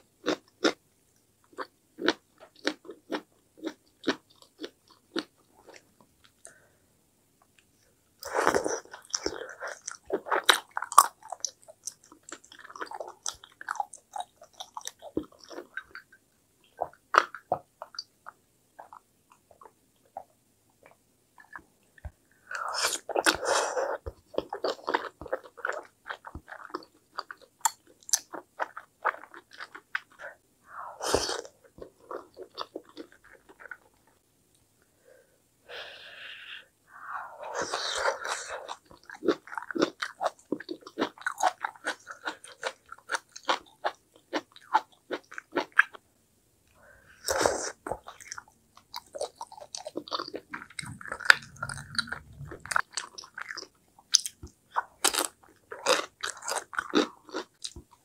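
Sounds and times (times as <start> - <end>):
person chewing and smacking: 1.5 - 6.5, 8.2 - 30.2, 31.3 - 34.1, 37.6 - 46.0, 47.2 - 58.0.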